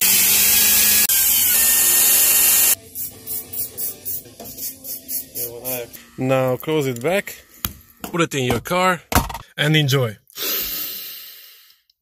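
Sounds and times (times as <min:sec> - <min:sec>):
drill press grinding through metal: 0:00.0 - 0:02.8.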